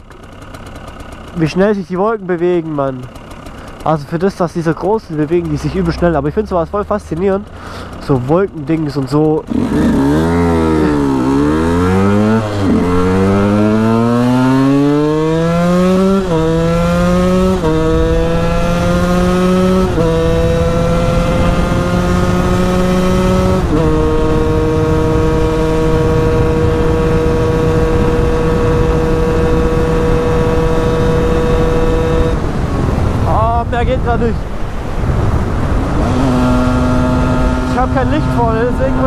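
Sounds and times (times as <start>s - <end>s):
motorcycle engine accelerating: 0.0s - 39.0s
wind rushing over microphone: 16.2s - 39.0s.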